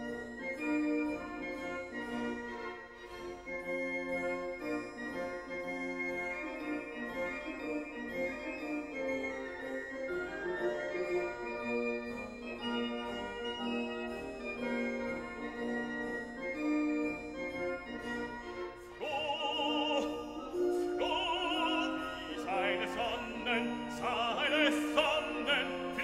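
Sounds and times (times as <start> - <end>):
operatic singer with vibrato: 19.0 - 26.0.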